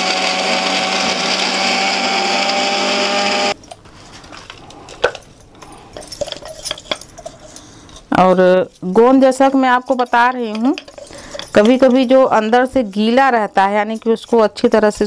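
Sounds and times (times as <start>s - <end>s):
mixer grinder motor whine: 0.0s - 3.6s.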